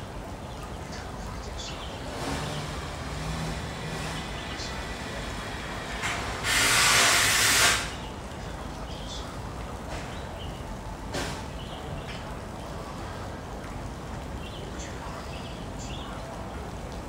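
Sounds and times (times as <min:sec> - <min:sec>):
low background murmur: 0:00.0 - 0:06.6, 0:07.8 - 0:17.0
loud hiss: 0:02.2 - 0:08.1.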